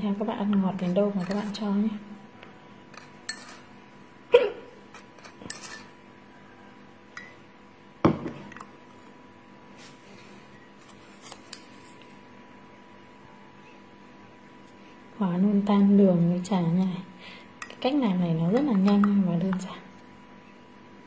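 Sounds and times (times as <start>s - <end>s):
faint hum: 0.0s - 21.0s
spoon clinking against glass mug: 3.2s - 3.6s.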